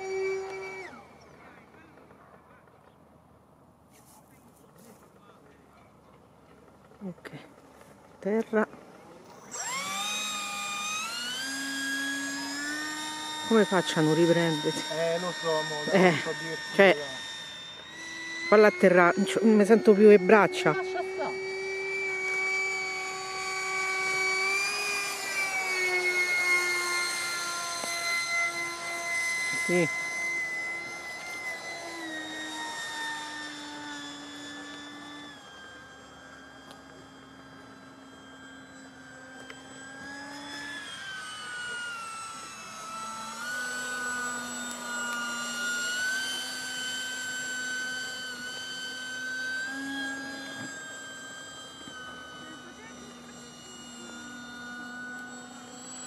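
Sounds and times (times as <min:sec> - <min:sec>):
model jet motor whine: 0:00.0 - 0:56.0.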